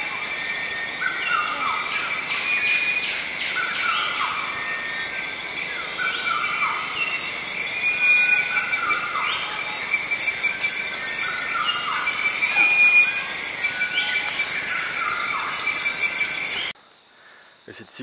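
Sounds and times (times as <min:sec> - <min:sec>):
insects droning: 0:00.0 - 0:18.0
short gliding calls: 0:03.6 - 0:16.8.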